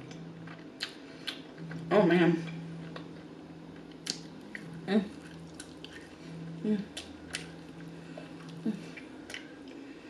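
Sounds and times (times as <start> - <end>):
chewing and mouth smacks: 0.1 - 1.8, 3.8 - 6.2, 6.9 - 9.8
person humming murmurs: 6.5 - 7.0, 8.5 - 9.0.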